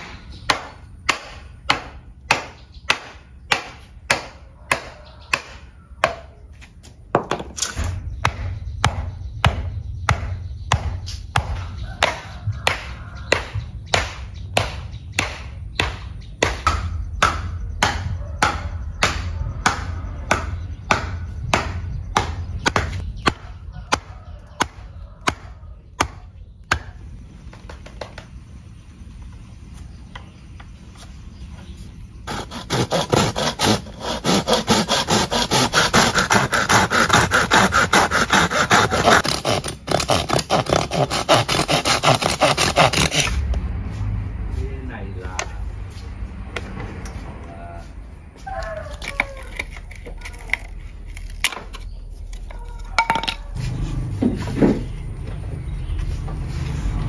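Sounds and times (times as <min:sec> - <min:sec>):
rhythmic blows on wood: 0:08.1 - 0:27.2, 0:32.2 - 0:44.0
tool rasping wood: 0:32.2 - 0:43.4.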